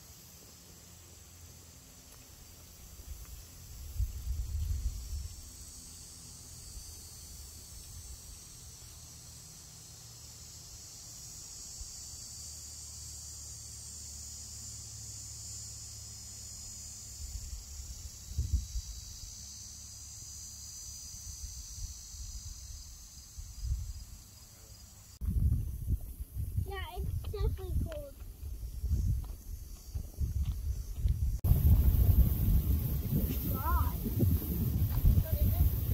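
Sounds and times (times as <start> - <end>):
insects droning: 0.0 - 35.9
wind rumbling on microphone: 3.1 - 5.5, 17.4 - 19.0, 25.2 - 35.9.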